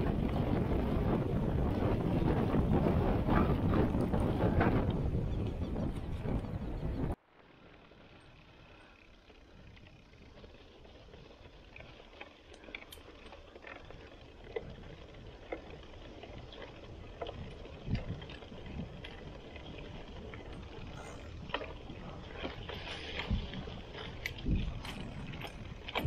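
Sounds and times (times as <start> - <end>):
bike tyres rumbling on dirt: 0.0 - 26.0
bike clicks and knocks: 9.6 - 26.0.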